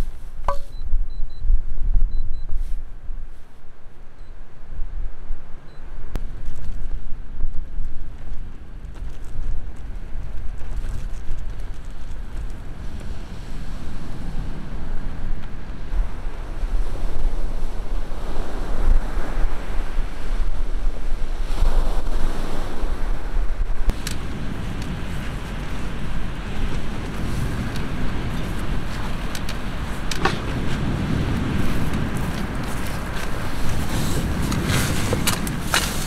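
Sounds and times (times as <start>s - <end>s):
wind buffeting microphone: 4.5s - 36.0s
waves washing on beach: 12.1s - 36.0s.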